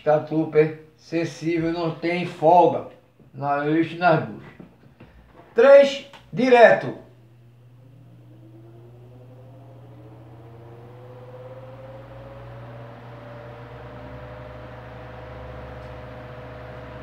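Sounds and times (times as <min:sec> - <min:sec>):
electric fan motor whine: 0:05.8 - 0:17.0.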